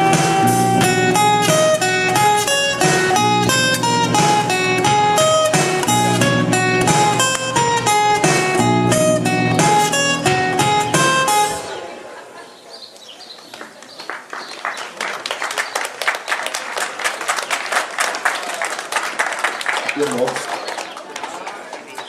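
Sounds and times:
acoustic guitars playing: 0.0s - 12.3s
audience applause: 13.4s - 22.0s.

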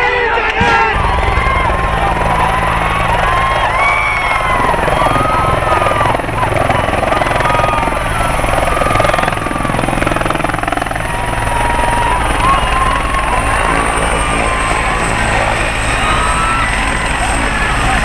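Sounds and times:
high turbine whine: 0.6s - 18.0s
helicopter rotor and engine: 1.0s - 18.0s.

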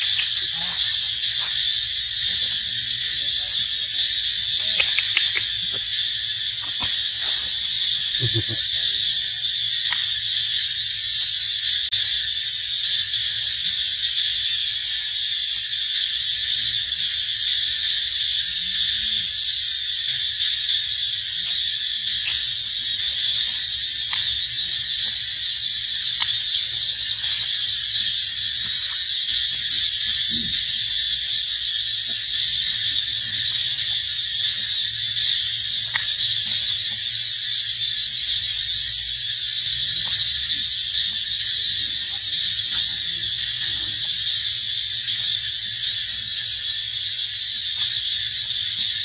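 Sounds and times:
cicadas singing: 0.0s - 49.0s
insects droning: 0.0s - 49.0s
faint clicks: 4.6s - 5.9s.

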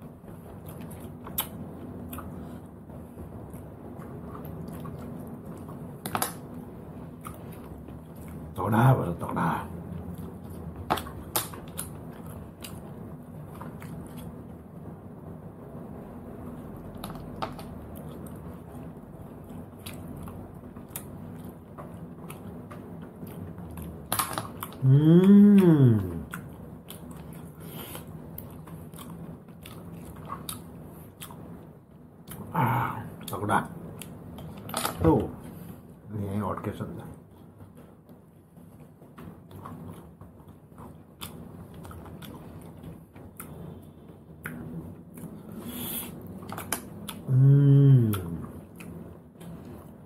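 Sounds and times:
steady low hum: 0.0s - 50.0s
mouth chewing: 16.9s - 31.6s.

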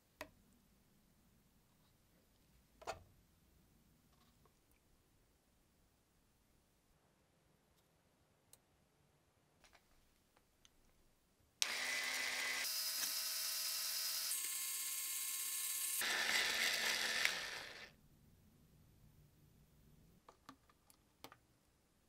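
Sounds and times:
small electric motor whirring: 11.6s - 17.9s.

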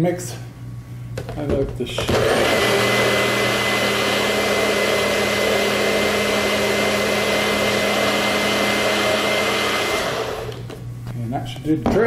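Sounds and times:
blender motor running: 2.0s - 10.8s.

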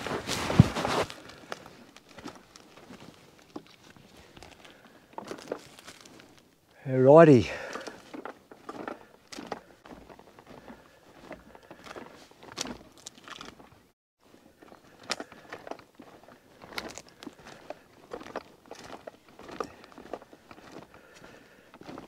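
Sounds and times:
footsteps crunching on dry leaves: 0.0s - 6.4s, 7.7s - 13.7s, 14.4s - 22.0s.

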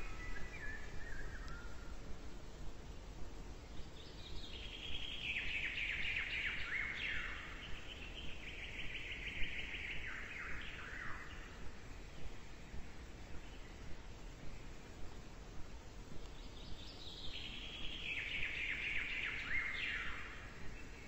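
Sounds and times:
birds singing with chirps and trills: 0.0s - 21.0s.

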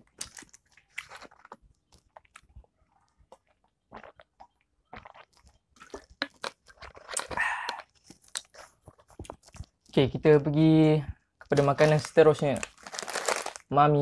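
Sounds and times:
gulping and swallowing water: 0.0s - 9.8s
lip and mouth clicks: 3.3s - 10.0s.

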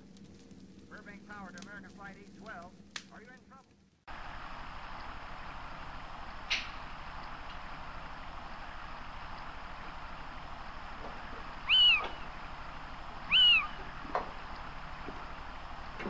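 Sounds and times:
steady background hiss: 0.0s - 16.0s
high animal calls: 11.1s - 15.4s.

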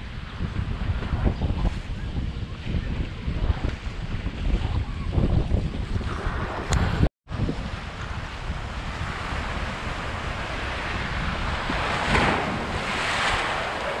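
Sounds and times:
wind buffeting microphone: 0.0s - 14.0s
small waves breaking on sand: 7.3s - 14.0s.

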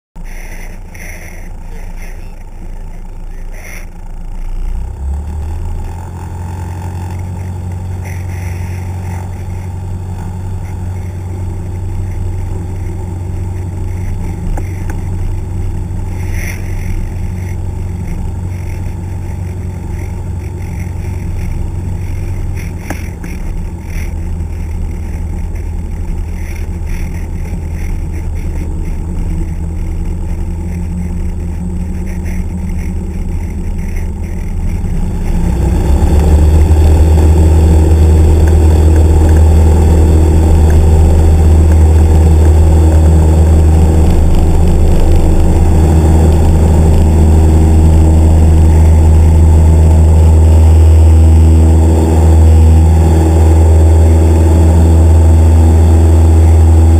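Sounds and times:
light plane engine and propeller: 0.2s - 56.9s.

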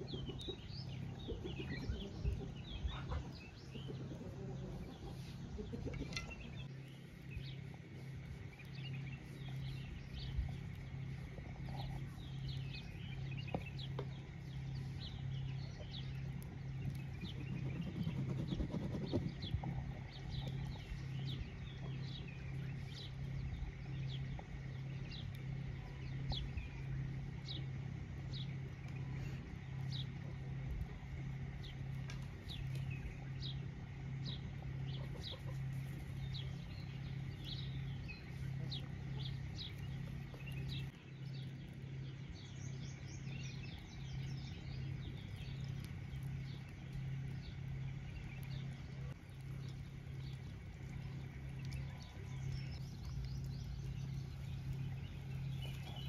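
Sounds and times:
birds chirping: 0.0s - 56.0s
low pulsing hum: 0.0s - 56.0s.

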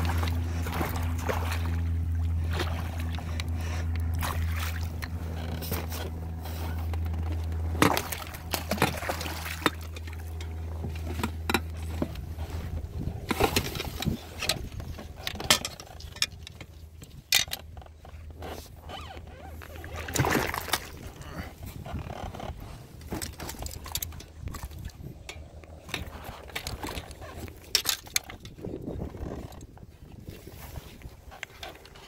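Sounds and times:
fish thrashing and splashing: 0.0s - 16.5s, 19.5s - 22.3s
low hum: 0.0s - 32.0s.

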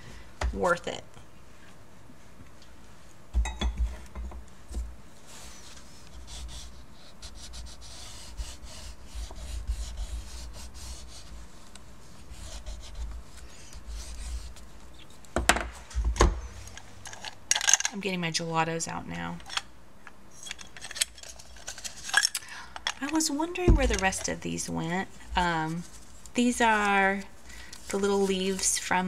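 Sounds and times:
crayon scratching on paper: 5.4s - 14.6s.

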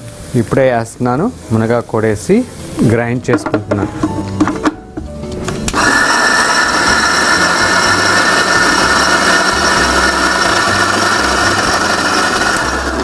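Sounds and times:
electric mixer grinder running: 5.7s - 13.0s.

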